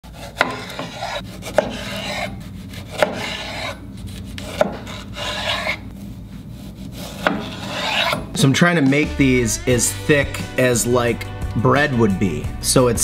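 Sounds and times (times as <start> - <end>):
knife sawing through tomato: 0.0 - 5.9, 6.5 - 8.4.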